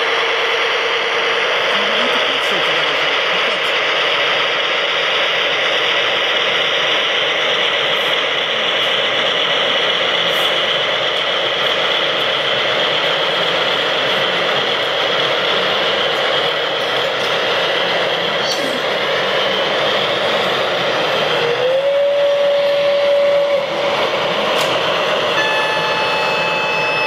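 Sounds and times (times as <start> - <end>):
model locomotive rattling on track: 0.0 - 27.0.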